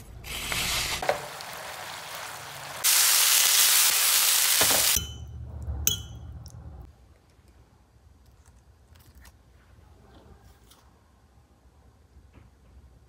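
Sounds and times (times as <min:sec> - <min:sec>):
food sizzling in a hot pan: 0:00.5 - 0:05.0.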